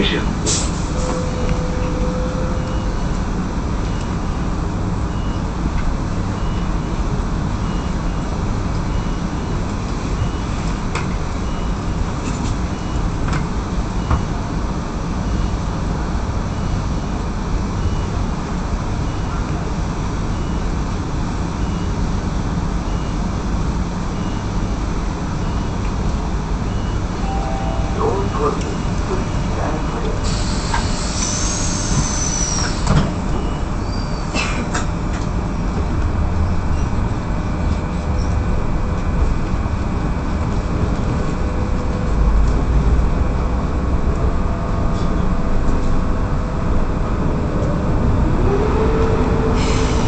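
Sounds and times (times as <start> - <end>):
train equipment hum and rumble: 0.0 - 50.0
faint high pip: 27.2 - 29.1.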